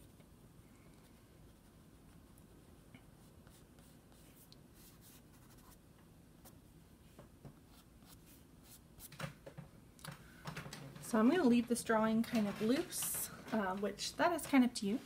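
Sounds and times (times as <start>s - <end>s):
pastel scratching on paper: 3.2s - 5.8s.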